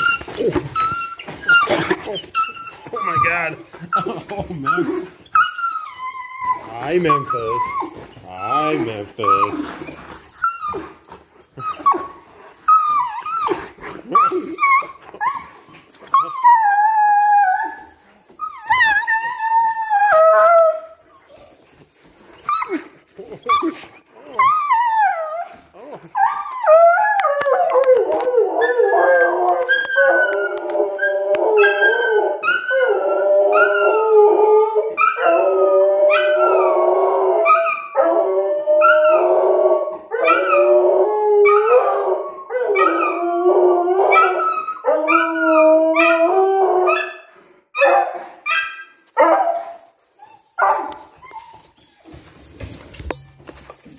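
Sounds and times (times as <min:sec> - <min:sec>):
dog woofing: 0:00.0 - 0:05.2
dog howling: 0:00.0 - 0:21.4, 0:22.5 - 0:47.2.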